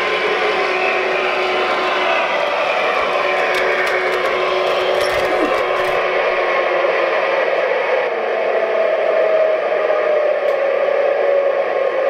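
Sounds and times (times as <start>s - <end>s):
model locomotive hissing whir: 0.0s - 6.8s.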